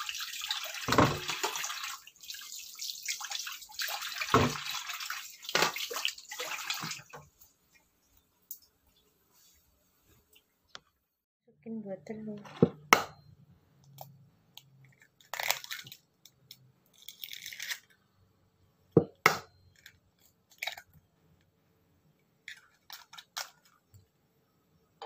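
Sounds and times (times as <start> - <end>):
eggshells cracking: 15.0 - 18.0.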